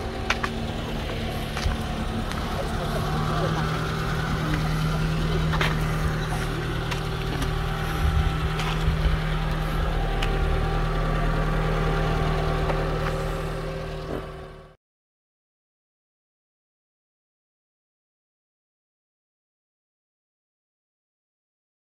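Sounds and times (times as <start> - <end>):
car engine idling: 0.0 - 14.8.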